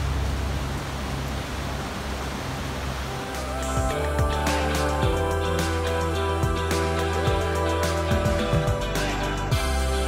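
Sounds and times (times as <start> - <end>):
sustained music chords: 3.0 - 10.0.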